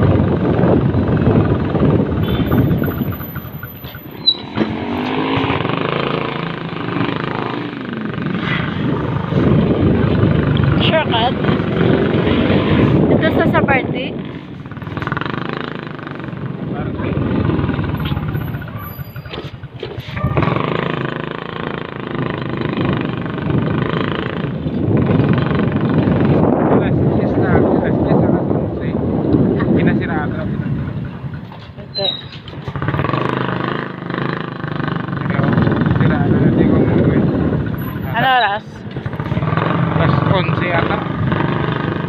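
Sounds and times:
vehicle engine running: 0.0 - 26.7
road noise: 0.0 - 42.0
street traffic noise: 0.0 - 42.0.

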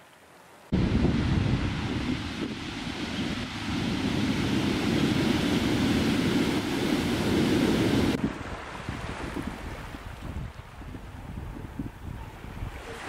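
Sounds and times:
ocean surf breaking: 0.7 - 10.4
wind rumbling on microphone: 0.7 - 13.0.

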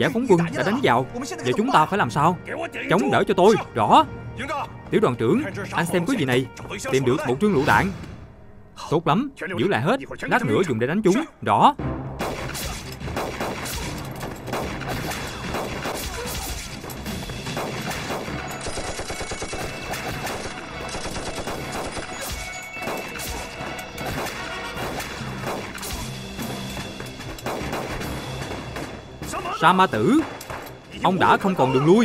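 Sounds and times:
heavy gunfire: 17.2 - 26.2, 27.4 - 29.0.

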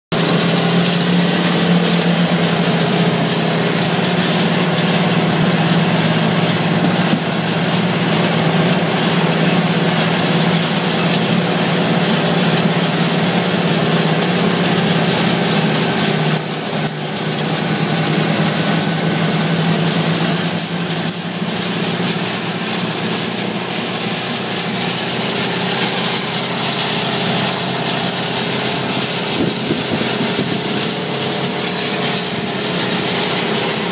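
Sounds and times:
tillage discs rushing through soil: 0.1 - 33.9
tractor engine droning: 0.1 - 33.9.

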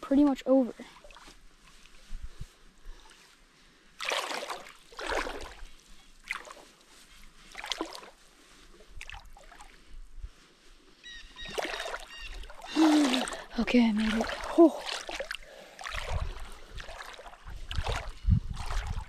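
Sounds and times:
person wading through water: 0.5 - 19.0.

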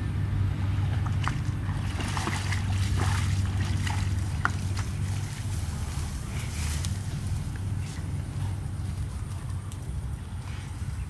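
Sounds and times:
low rumble: 0.0 - 11.0
splashing in muddy water: 0.5 - 8.4
water drips: 1.0 - 5.4.

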